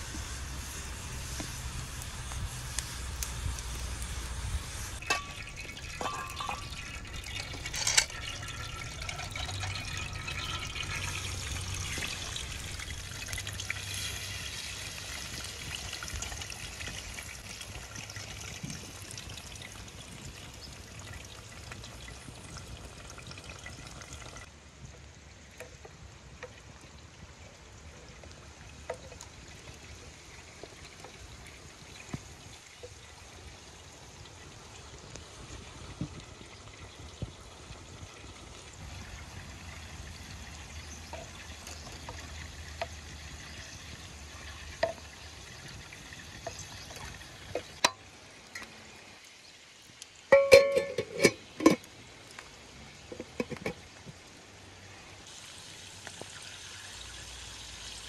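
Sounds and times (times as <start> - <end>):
oil trickling into pan: 0.0 - 58.0
metal cookware clinking: 5.0 - 12.9, 50.3 - 51.9.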